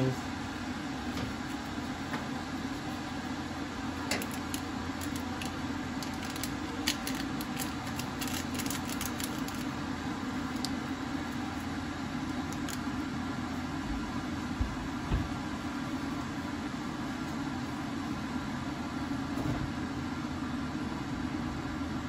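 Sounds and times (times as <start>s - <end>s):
steady low hum: 0.0s - 22.0s
plastic packet crinkling: 4.1s - 9.8s.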